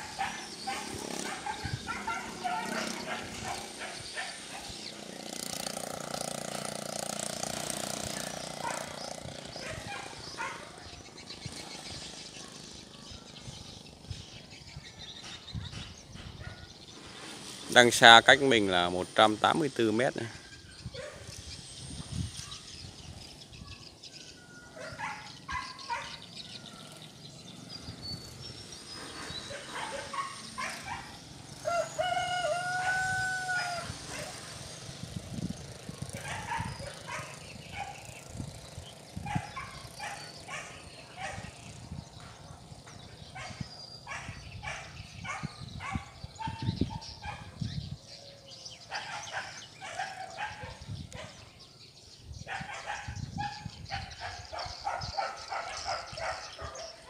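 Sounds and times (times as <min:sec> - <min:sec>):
animal long rising and falling call: 0:31.6 - 0:34.6.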